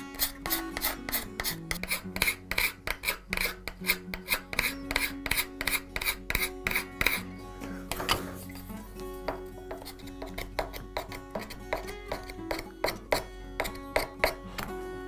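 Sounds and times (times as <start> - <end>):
scraper rasping on wood: 0.0 - 7.3, 9.6 - 14.4
soft background music: 0.0 - 15.0.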